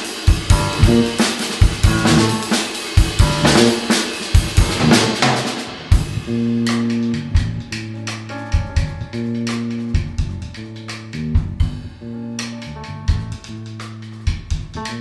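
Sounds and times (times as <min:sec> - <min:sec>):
cymbals: 0:00.0 - 0:06.9
drum kit: 0:00.0 - 0:15.0
held low notes and chords: 0:00.4 - 0:02.6, 0:03.2 - 0:04.0, 0:04.6 - 0:05.2, 0:05.9 - 0:15.0.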